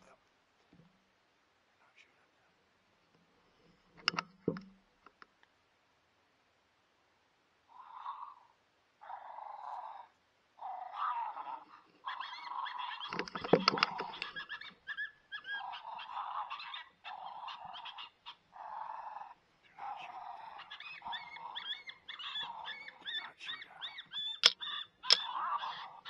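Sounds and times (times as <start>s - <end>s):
coyote yips and whining: 7.7s - 26.0s.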